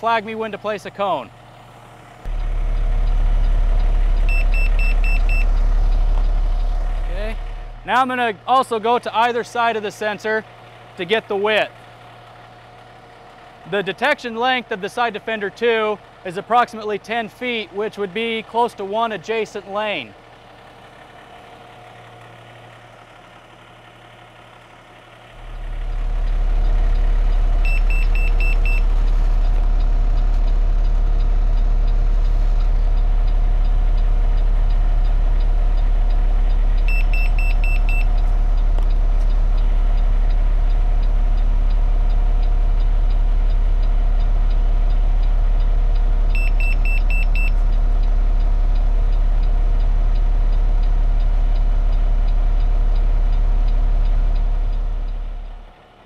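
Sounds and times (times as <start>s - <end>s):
truck engine idling: 0.0s - 56.0s
quick high beeps: 4.3s - 5.5s, 27.6s - 28.9s, 36.9s - 38.1s, 46.4s - 47.6s.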